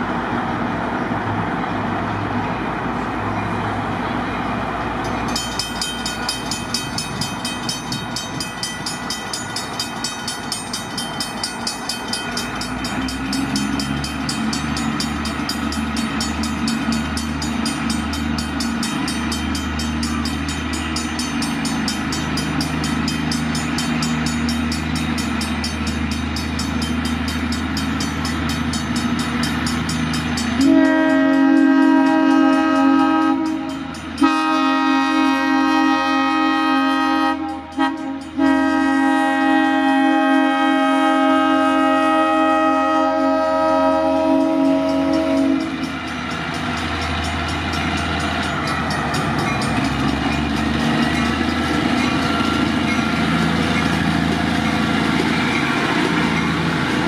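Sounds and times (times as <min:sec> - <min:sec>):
diesel locomotive engine rumble: 0:00.0 - 0:57.0
locomotive horn: 0:30.6 - 0:45.8
rapid metallic ringing: 0:44.4 - 0:54.0.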